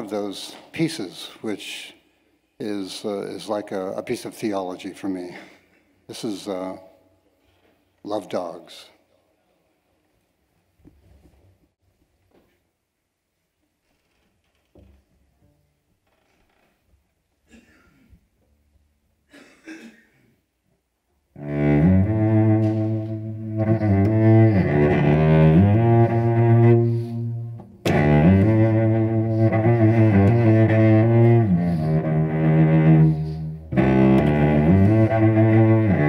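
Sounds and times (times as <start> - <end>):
bowed cello: 21.4 - 36.0.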